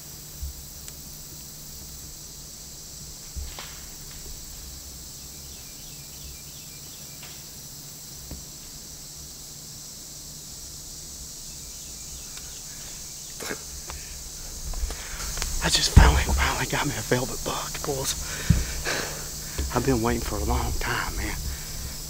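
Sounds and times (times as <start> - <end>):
insects chorus: 0.0 - 22.0
faint clicks: 12.3 - 20.2.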